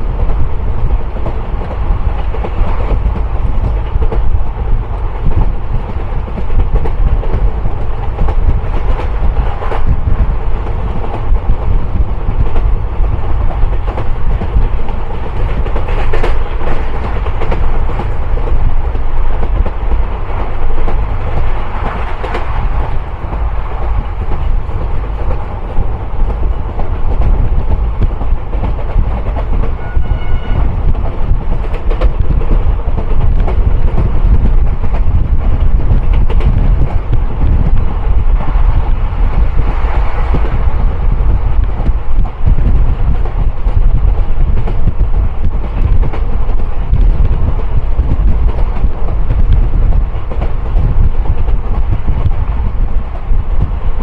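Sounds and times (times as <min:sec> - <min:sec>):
wheels clacking over rail joints: 0:00.0 - 0:53.7
train wheels rumbling on rails: 0:00.0 - 0:54.0.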